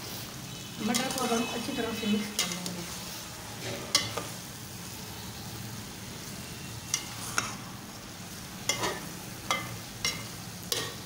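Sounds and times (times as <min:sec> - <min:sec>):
food sizzling in a metal pot: 0:00.0 - 0:11.0.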